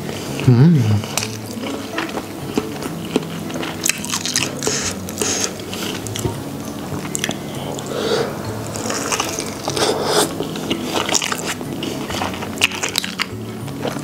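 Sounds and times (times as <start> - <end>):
faint music: 0.0 - 14.0
chewing crunches and squishes: 1.0 - 6.3, 10.4 - 14.0.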